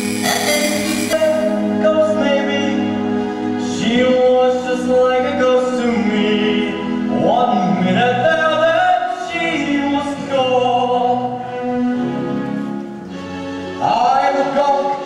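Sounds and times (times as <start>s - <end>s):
instrumental accompaniment: 0.0s - 2.0s
man singing: 0.2s - 3.0s, 3.6s - 11.6s.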